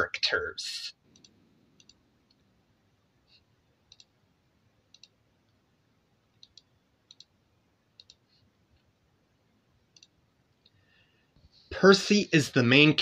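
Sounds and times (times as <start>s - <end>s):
faint sharp clicks: 6.4s - 7.4s, 8.0s - 8.2s.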